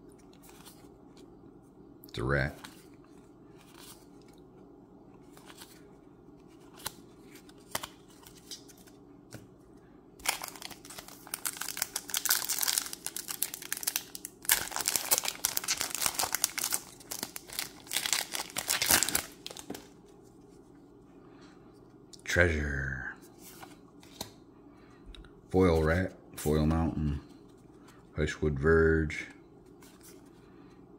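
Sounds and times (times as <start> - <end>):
foil wrapper tearing and crinkling: 10.2 - 19.8.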